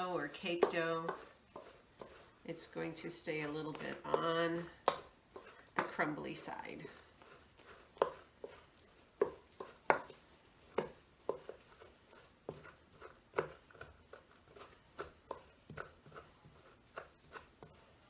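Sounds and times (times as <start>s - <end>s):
spoon scraping metal bowl: 0.0s - 18.0s.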